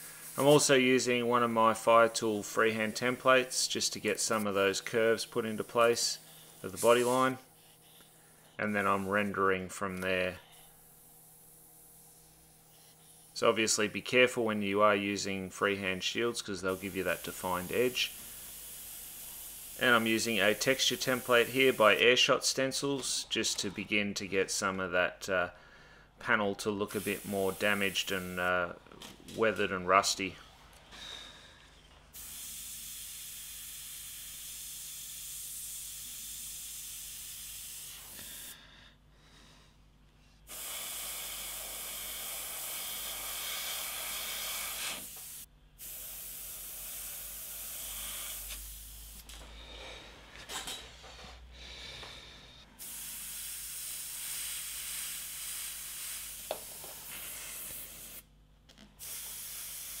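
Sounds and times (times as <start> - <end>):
airbrush spraying hiss: 0.0 - 13.9, 16.5 - 22.3, 26.9 - 28.5, 32.1 - 38.6, 40.5 - 49.3, 52.8 - 58.3, 59.0 - 60.0.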